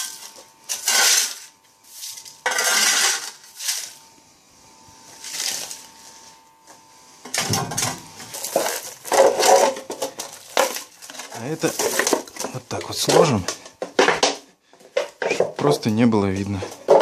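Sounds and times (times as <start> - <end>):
scraping and metallic clattering: 2.4 - 3.9, 7.3 - 14.2.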